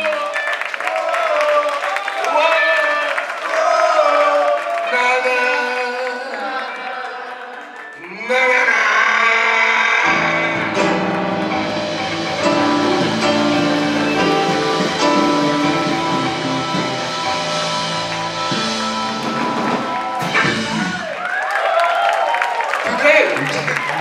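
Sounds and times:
keyboards: 6.4s - 21.2s
electric bass guitar: 10.0s - 21.1s
drum kit: 10.1s - 21.4s.

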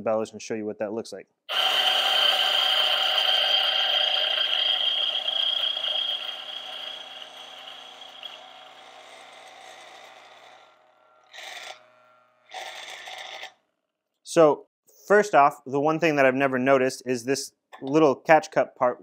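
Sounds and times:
coffee grinder motor whining: 1.5s - 13.6s.

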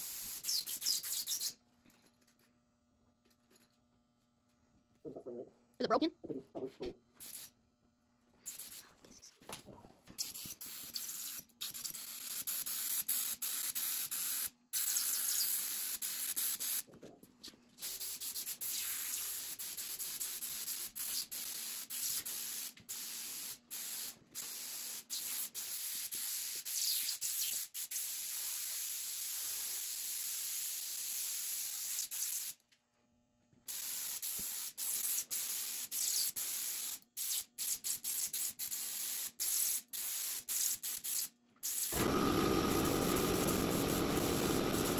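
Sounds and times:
paint spray gun hissing: 0.0s - 1.5s, 17.8s - 32.6s, 33.7s - 44.9s.

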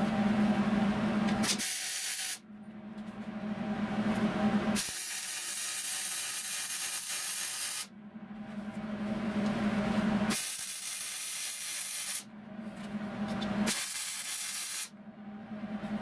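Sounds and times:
welder buzzing hum: 0.0s - 2.4s, 4.2s - 7.9s, 9.4s - 12.3s, 13.4s - 14.9s
welding hiss: 1.5s - 2.4s, 4.8s - 7.9s, 10.3s - 12.2s, 13.7s - 14.9s.

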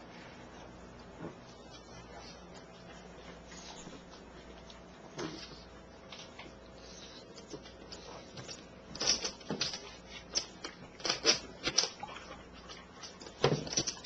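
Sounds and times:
dog crunching and chewing food: 5.6s - 14.0s.

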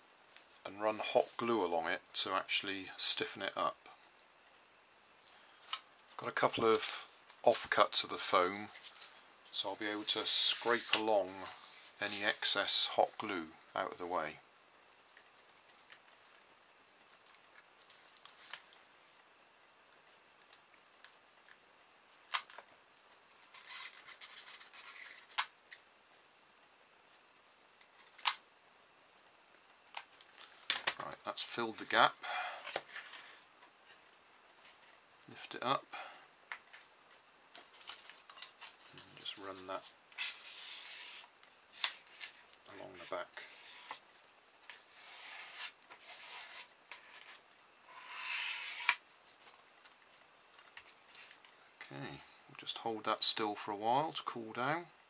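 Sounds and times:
scratchy rubbing on foam tray: 10.0s - 12.6s, 38.8s - 41.3s, 43.0s - 44.0s, 44.9s - 49.0s.

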